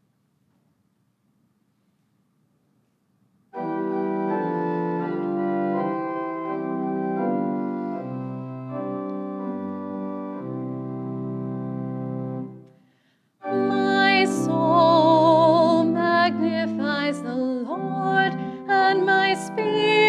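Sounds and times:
pipe organ chords: 3.5 - 12.7, 13.4 - 20.0.

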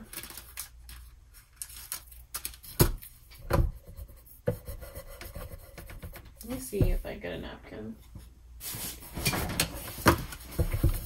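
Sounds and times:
fingertip rubbing whiteboard: 3.9 - 6.3.

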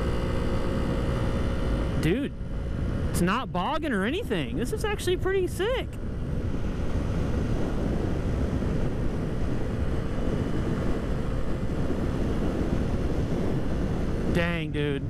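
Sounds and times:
wind rushing over microphone: 0.0 - 15.0.

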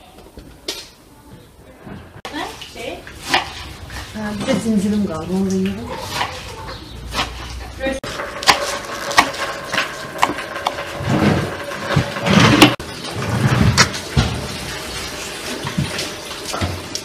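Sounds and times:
leaves scraped across board: 2.4 - 13.9.

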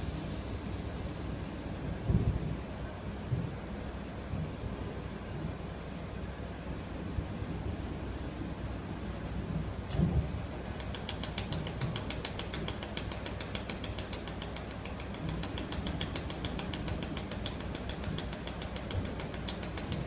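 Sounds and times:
thin high whine: 4.2 - 20.0
laser welder ticking: 10.4 - 20.0.

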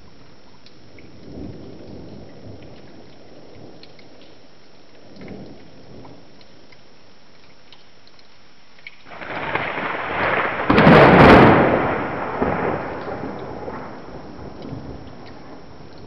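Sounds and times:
steady rain hiss: 0.0 - 16.0
thunder rumbling and crashing: 9.1 - 16.0.

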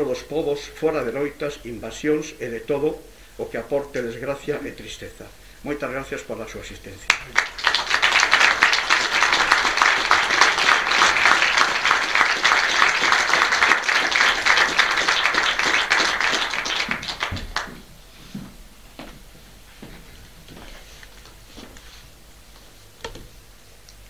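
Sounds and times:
audience applauding: 7.1 - 17.9.

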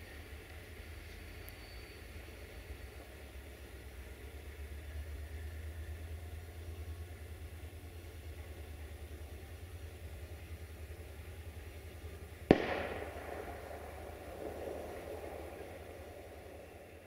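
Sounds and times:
low pulsing engine rumble: 0.0 - 17.0
firecracker bang echoing: 12.5 - 17.0.

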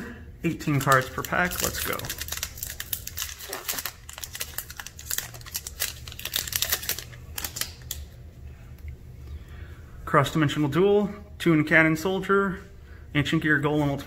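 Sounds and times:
foil wrapper crinkling: 0.5 - 8.1.

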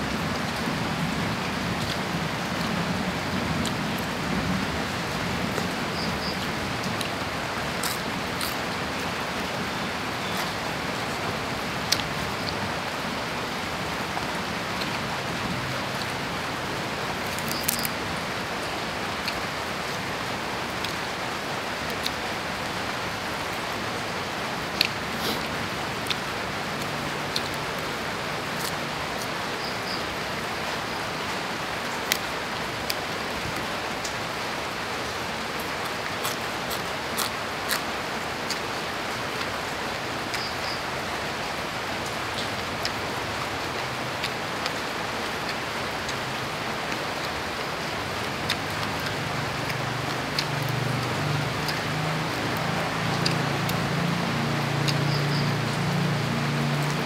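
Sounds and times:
rain hiss: 0.0 - 57.0.

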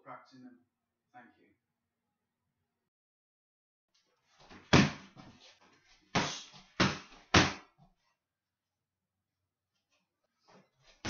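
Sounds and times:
strikes smacking a kick pad: 4.7 - 5.0, 6.2 - 7.6.

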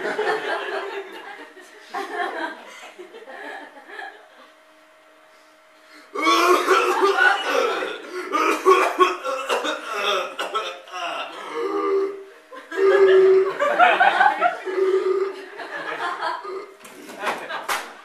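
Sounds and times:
man coughing: 6.2 - 12.2.

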